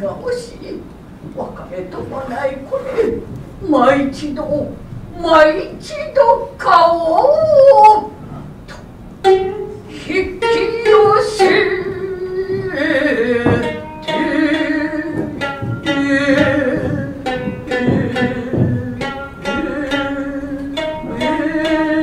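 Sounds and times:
person chanting long sung lines: 1.9 - 8.8, 9.4 - 22.0
shamisen plucked notes: 9.2 - 22.0.

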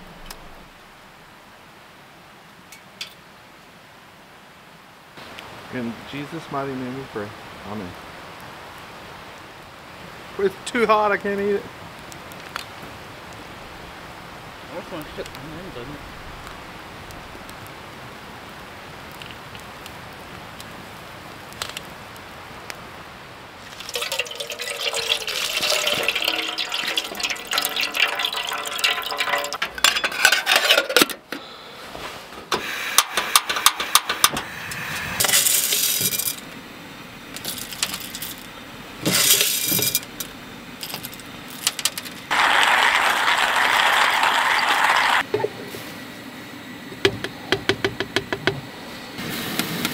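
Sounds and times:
low background noise: 0.0 - 49.9
water pouring into vessel: 23.6 - 29.6
hissing bursts: 31.4 - 36.4, 49.1 - 49.9.

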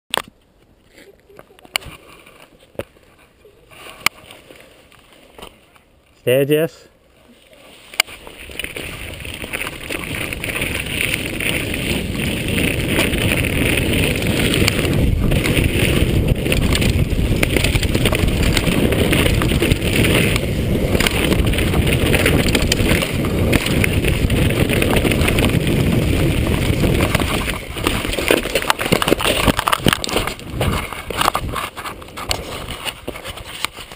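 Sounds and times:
tyres rumbling on gravel: 8.0 - 33.9
wind noise on microphone: 8.0 - 33.9.

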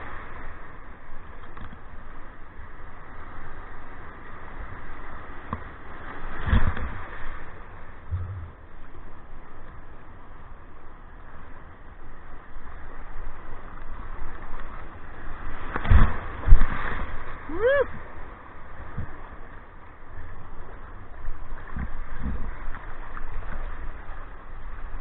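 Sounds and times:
whitewater surf washing: 0.0 - 25.0
wave thump and splash: 5.3 - 8.9, 13.8 - 19.6, 20.8 - 24.9.

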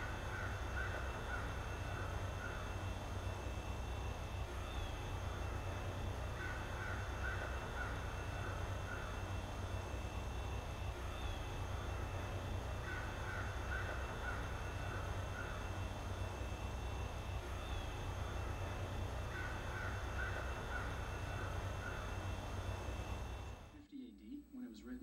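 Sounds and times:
crows cawing: 0.0 - 3.0, 4.5 - 9.5, 11.0 - 16.5, 17.4 - 23.4
steady low hum: 0.0 - 25.0.

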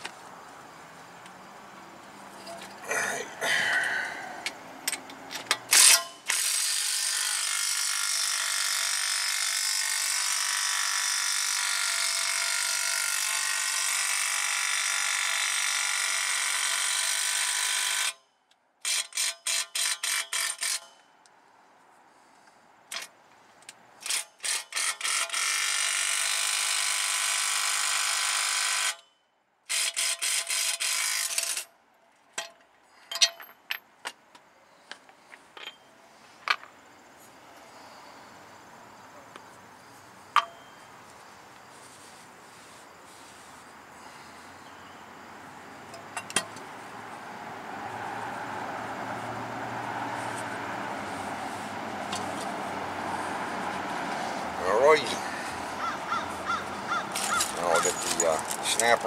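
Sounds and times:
impact wrench running: 5.7 - 18.2, 18.8 - 20.9, 24.0 - 29.0, 29.7 - 31.6.

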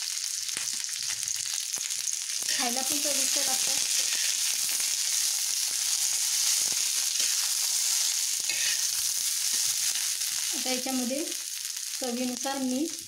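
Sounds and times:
corn sizzling in oil: 0.0 - 13.0
metal spatula scraping pan: 2.5 - 4.8, 6.6 - 10.0.

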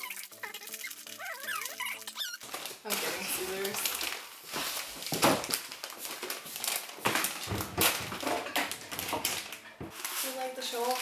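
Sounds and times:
foil snack bag crinkling: 0.0 - 11.0.

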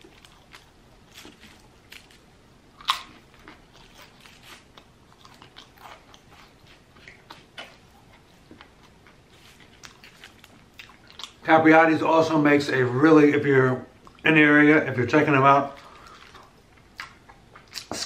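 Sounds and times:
man chewing sandwich: 0.0 - 11.4, 15.8 - 18.0.

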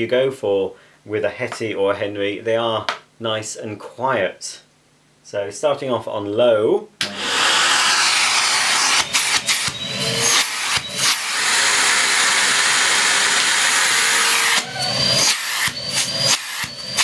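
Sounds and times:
vacuum cleaner running: 7.0 - 17.0.

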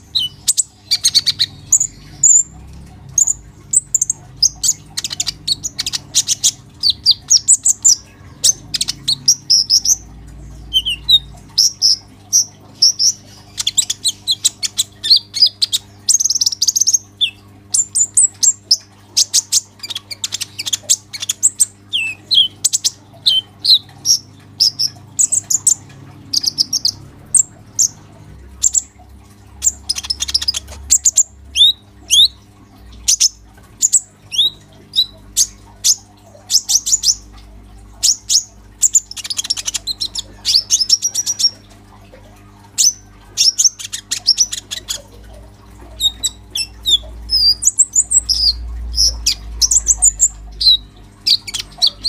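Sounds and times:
bird chirping and twittering: 0.0 - 41.6, 42.8 - 52.0.

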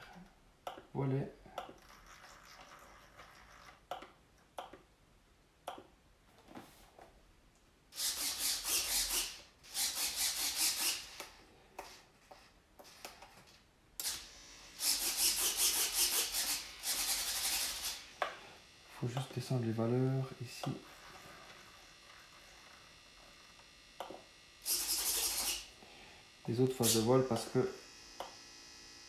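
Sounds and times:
servos buzzing: 7.9 - 29.0.

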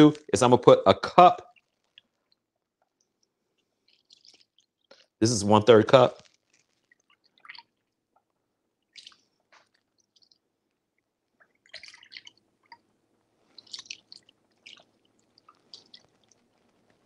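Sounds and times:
sauce splashing and squelching: 1.4 - 5.2, 6.2 - 17.0.

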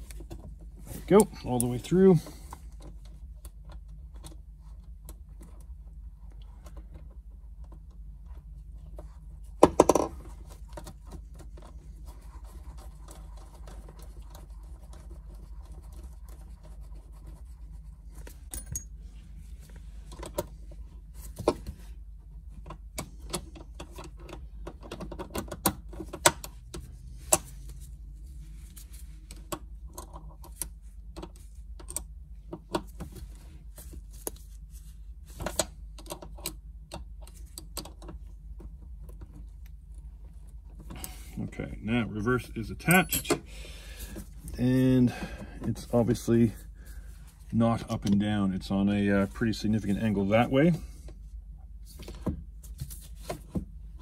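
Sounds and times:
low steady hum: 0.0 - 54.0
metallic clicks and clinks of tools: 42.9 - 43.4.

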